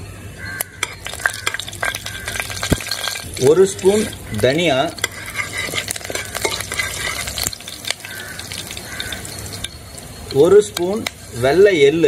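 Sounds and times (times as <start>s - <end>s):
seeds sizzling in hot oil: 0.5s - 12.0s
spatula clicking and scraping on metal: 0.8s - 9.8s.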